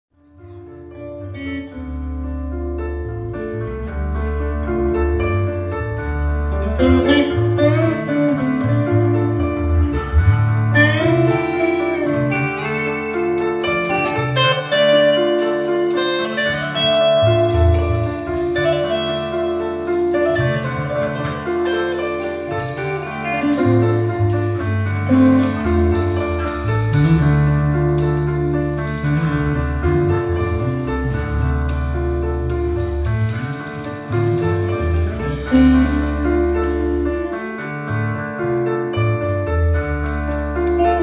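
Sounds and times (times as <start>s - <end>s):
bass guitar notes: 0.1s - 41.0s
electric guitar lines: 0.2s - 41.0s
electric keyboard: 0.2s - 41.0s
drums and cymbals: 12.6s - 37.3s.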